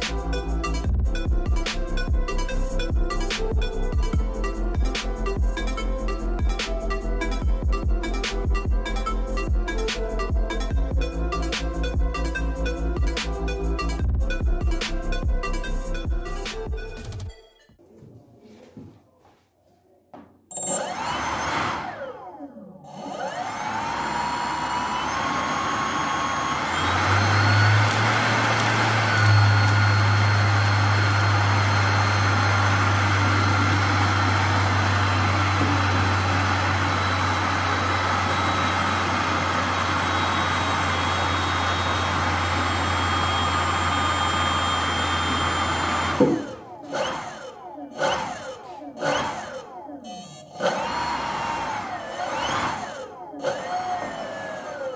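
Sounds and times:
electric ducted fan whining: 20.5 - 48.4.

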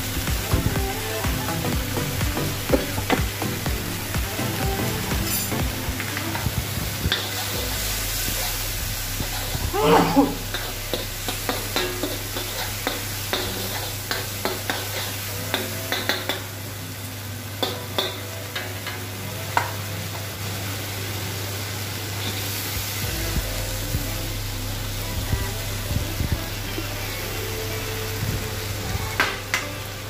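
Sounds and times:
low hum: 0.0 - 15.9, 23.0 - 30.0
vegetables sizzling in oil: 0.0 - 30.0.

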